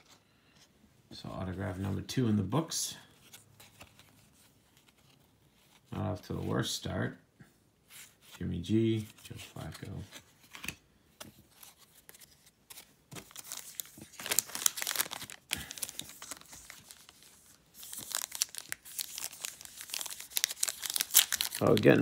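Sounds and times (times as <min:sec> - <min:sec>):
foil wrapper crinkling and tearing: 0:12.7 - 0:22.0.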